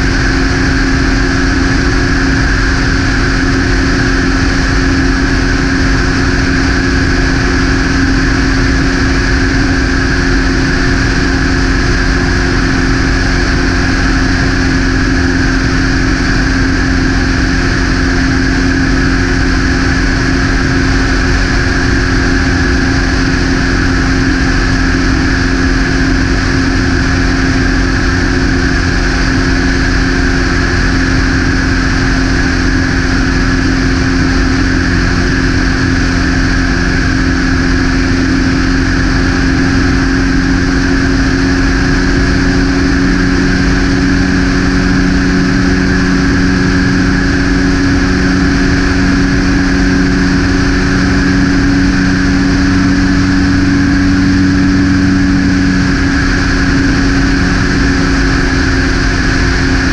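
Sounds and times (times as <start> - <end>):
propeller aircraft engine drone: 0.0 - 59.9.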